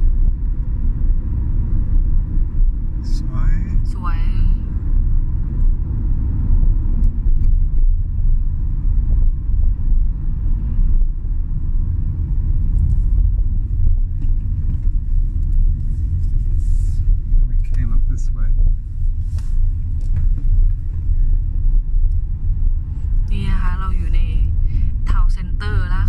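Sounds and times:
car cabin engine and road rumble: 0.0s - 26.0s.

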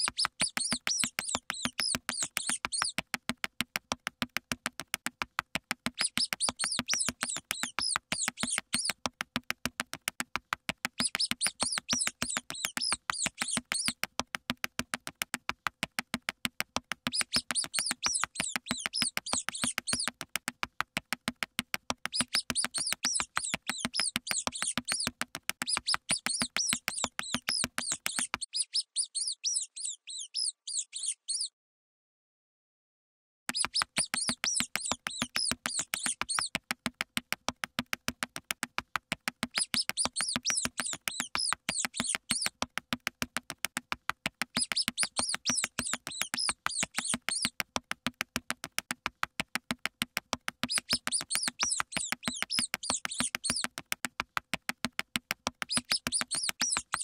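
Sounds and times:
high-pitched mouse squeaks: 0.0s - 3.1s, 5.8s - 9.0s, 11.0s - 14.1s, 17.0s - 20.2s, 22.0s - 31.5s, 33.5s - 36.6s, 39.4s - 42.6s, 44.4s - 47.6s, 50.6s - 53.8s, 55.6s - 57.0s
fast pattering clicks: 0.0s - 29.9s, 33.5s - 57.0s.

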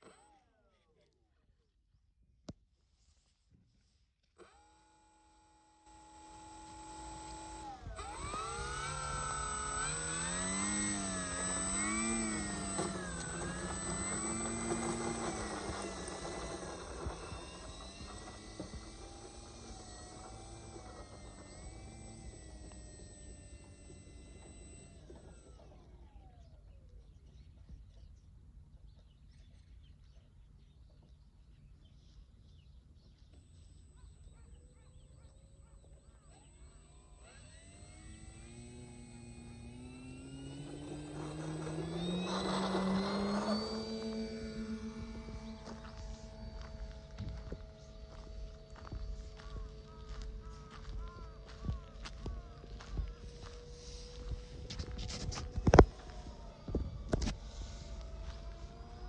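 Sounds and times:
model plane motor whining: 0.0s - 0.7s, 4.2s - 28.2s, 33.0s - 59.0s
bird chirps: 26.3s - 54.4s.

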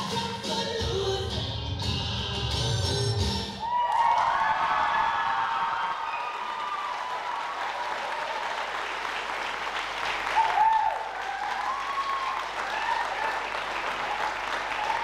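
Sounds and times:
audience cheer: 3.6s - 9.0s, 10.0s - 15.0s
audience applauding: 3.6s - 15.0s.

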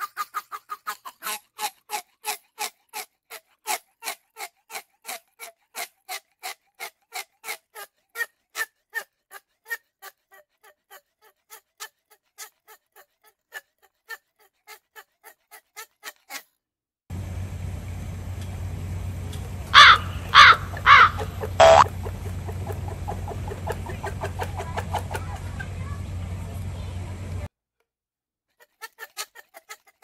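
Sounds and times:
swan making rasping sounds: 0.0s - 16.6s, 19.7s - 26.2s.

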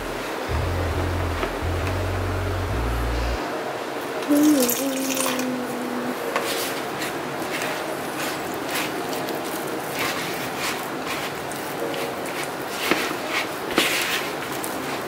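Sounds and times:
spoon stirring dough in plastic bowl: 6.4s - 15.0s.

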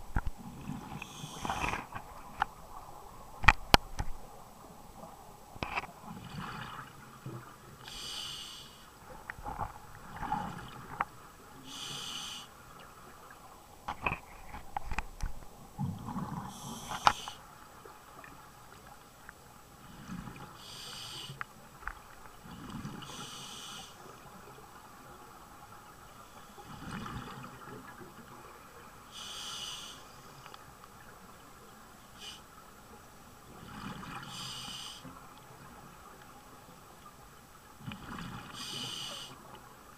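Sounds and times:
regulator hiss on inhale: 1.0s - 1.9s, 7.8s - 9.0s, 11.6s - 12.6s, 16.5s - 17.4s, 20.6s - 21.5s, 23.0s - 24.0s, 29.1s - 30.6s, 32.2s - 32.5s, 34.2s - 35.2s, 38.5s - 39.4s
diving gear clicks and knocks: 3.4s - 4.2s, 13.8s - 15.5s.

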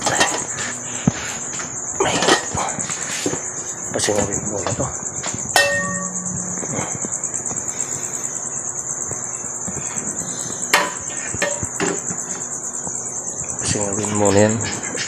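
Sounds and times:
crickets chirping: 0.0s - 15.0s
sharp metallic knocks: 5.5s - 7.1s, 10.7s - 12.0s
metal pot lid clanking: 5.6s - 6.5s.

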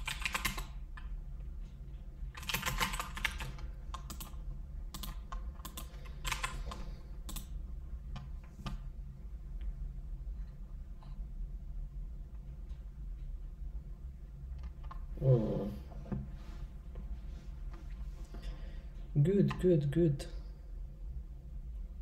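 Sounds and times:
keyboard typing: 0.0s - 1.1s, 2.3s - 8.8s.

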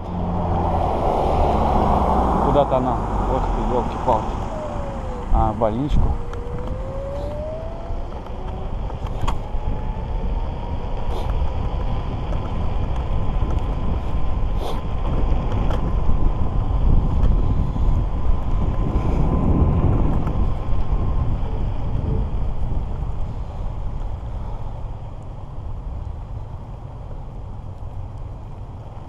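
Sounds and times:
low road rumble: 0.0s - 29.0s
wind buffeting microphone: 0.0s - 29.0s
electric scooter motor whining: 3.4s - 11.3s.

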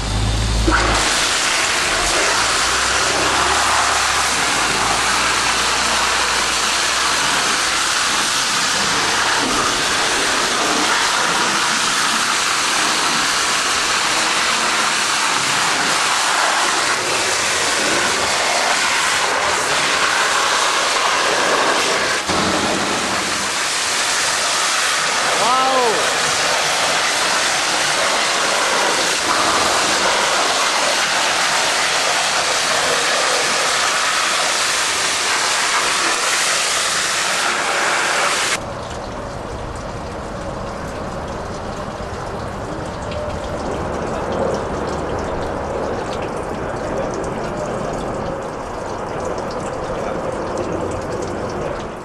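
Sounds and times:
high-pressure water jet hissing: 0.0s - 38.6s.

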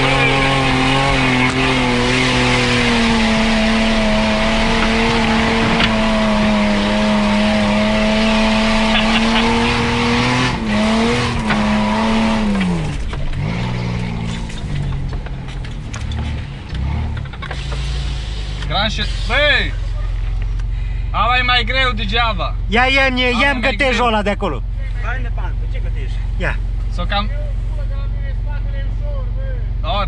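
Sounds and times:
engine revving under load: 0.0s - 20.7s.

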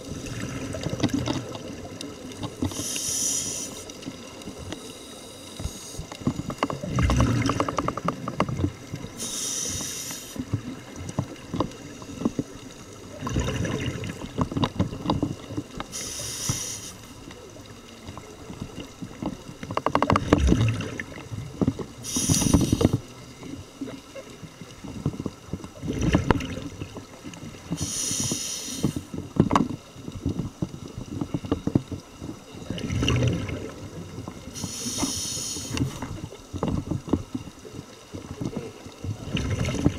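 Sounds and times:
bubbling exhale underwater: 0.0s - 1.9s, 6.8s - 8.3s, 13.1s - 14.3s, 20.2s - 21.4s, 25.8s - 26.9s, 32.6s - 36.3s, 39.0s - 39.9s
scuba regulator inhale hiss: 2.7s - 3.9s, 4.7s - 6.1s, 9.2s - 10.4s, 15.9s - 17.2s, 22.0s - 23.0s, 27.7s - 29.1s, 34.5s - 36.0s.

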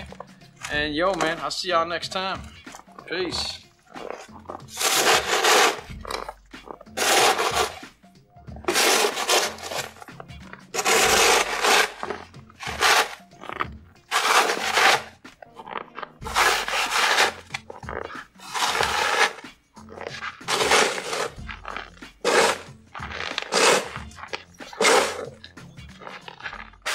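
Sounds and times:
background music with bass: 0.0s - 26.9s
snow shovel scraping: 4.0s - 6.0s, 7.0s - 7.8s, 8.7s - 10.0s, 10.8s - 13.3s, 14.1s - 15.2s, 16.2s - 17.5s, 18.4s - 19.4s, 20.1s - 25.4s, 26.2s - 26.9s.

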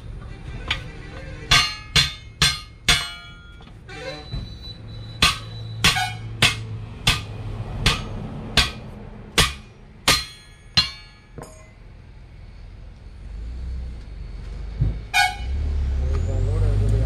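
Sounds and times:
hammer striking steel wheel rim: 1.5s - 3.8s, 5.1s - 11.8s.

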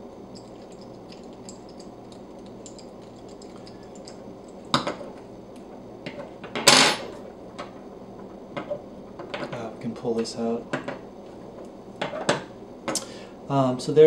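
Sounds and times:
small metal clicks and clinks: 0.4s - 4.9s.

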